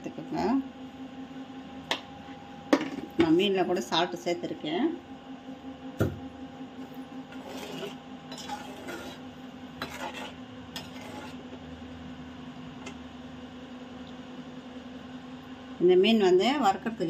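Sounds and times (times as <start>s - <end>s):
metal skimmer scraping a pan: 7.3s - 11.6s.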